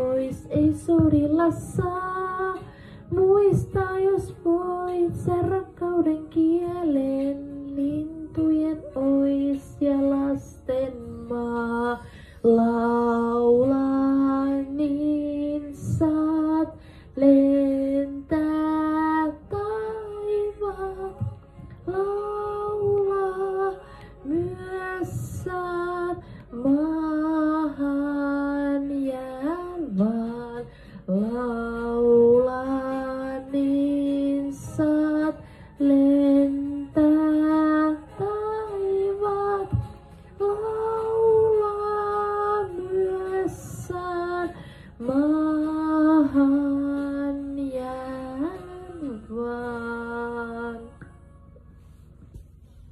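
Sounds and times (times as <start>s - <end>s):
woman singing slow melody: 0.0s - 52.4s.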